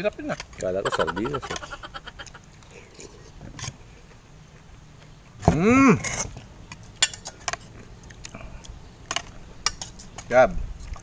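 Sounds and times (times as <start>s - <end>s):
cutlery clinking on dishes: 7.0s - 7.6s, 9.1s - 10.3s.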